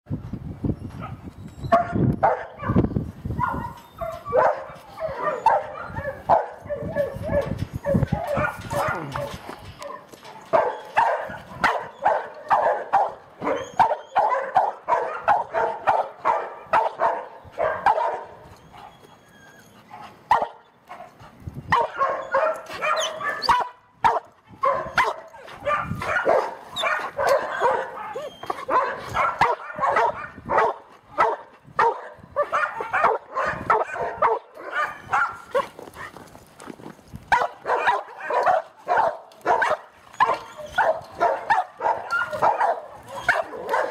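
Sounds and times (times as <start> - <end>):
dog barking and yipping: 1.0 - 2.8, 3.4 - 21.1, 21.7 - 36.2, 37.3 - 43.9.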